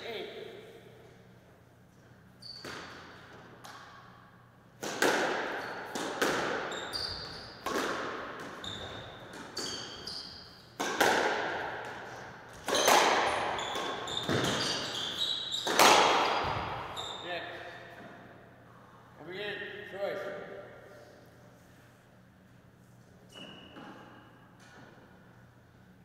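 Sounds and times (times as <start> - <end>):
squash ball hits: 2.5 - 3.9, 4.8 - 10.1, 10.8 - 17.0
shoes squeaking on wooden floor: 6.7 - 7.6, 8.6 - 10.6, 12.7 - 15.8.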